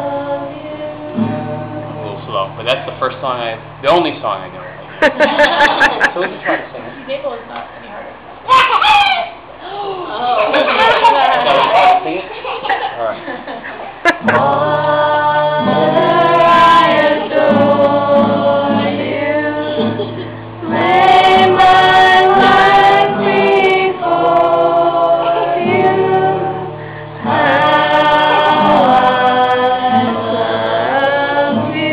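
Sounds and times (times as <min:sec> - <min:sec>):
group singing a hymn: 0:00.0 - 0:02.2, 0:14.0 - 0:31.9.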